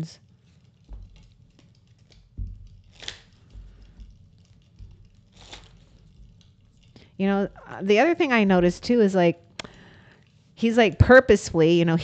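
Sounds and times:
deck of cards thumping: 0:02.2 - 0:04.2.

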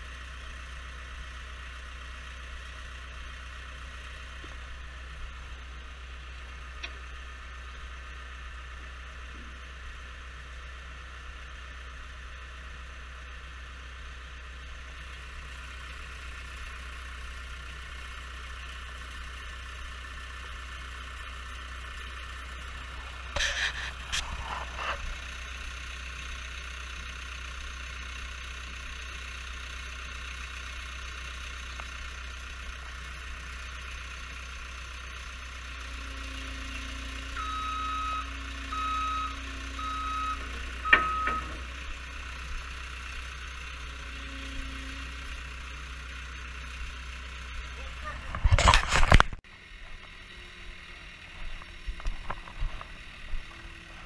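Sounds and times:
diesel engine running: 0:00.0 - 0:54.0
backup alarm beeps: 0:37.4 - 0:41.7.

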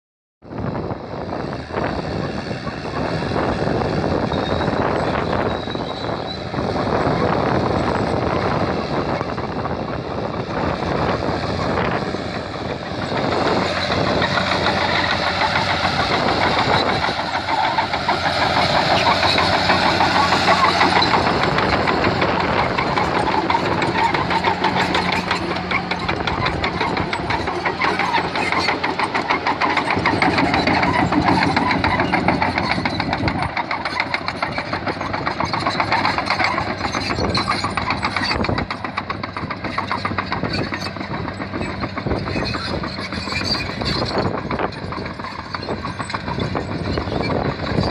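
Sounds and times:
bulldozer diesel engine running: 0:00.5 - 0:47.9
steel tracks clanking: 0:11.6 - 0:47.9.

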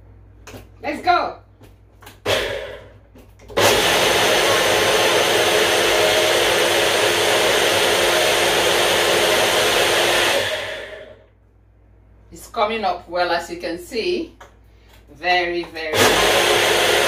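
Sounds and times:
blender running: 0:02.2 - 0:11.3, 0:15.8 - 0:17.0.

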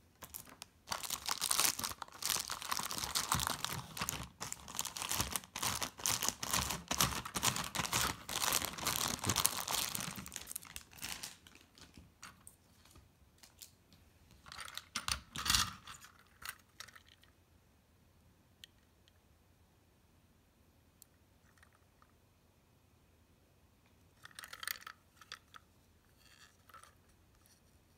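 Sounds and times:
plastic bag crinkling: 0:00.2 - 0:12.1
plastic toy cars clicking: 0:14.5 - 0:17.4, 0:24.2 - 0:27.0.

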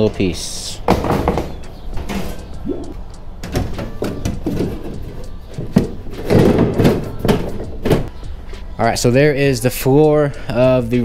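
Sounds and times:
metal rattling and scraping: 0:01.0 - 0:08.6.

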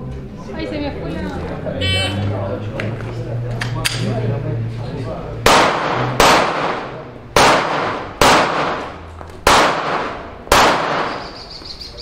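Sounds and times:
pistol shots: 0:05.4 - 0:11.4.

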